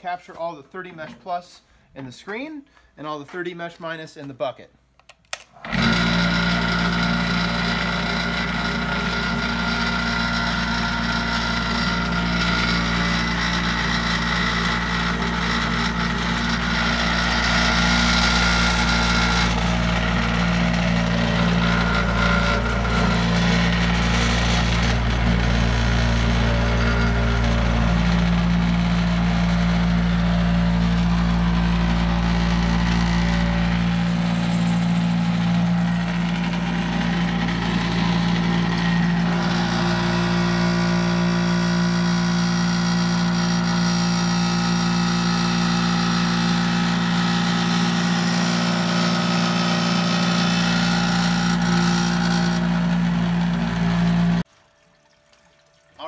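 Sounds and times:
electric motor humming: 5.6s - 54.5s.

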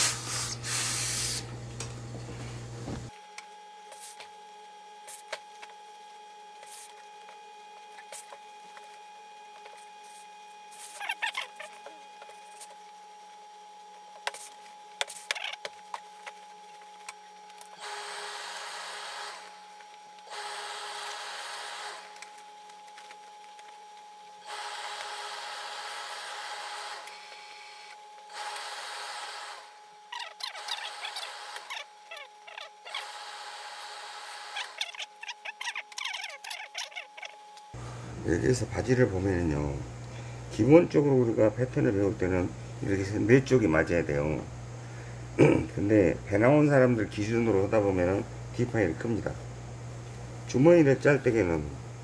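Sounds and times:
steam iron hissing: 0.0s - 1.5s, 17.8s - 19.6s, 20.3s - 22.2s, 24.4s - 29.8s
faint hum: 0.0s - 52.0s.

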